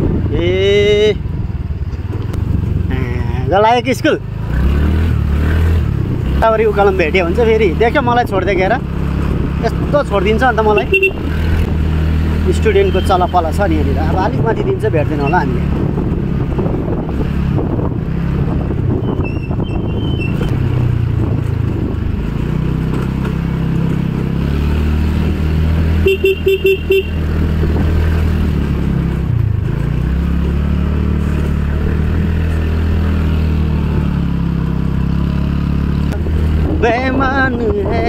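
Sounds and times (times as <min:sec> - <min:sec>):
motorcycle engine running: 0:00.0 - 0:38.0
motorcycle horn toots: 0:10.7 - 0:11.4, 0:26.0 - 0:27.3.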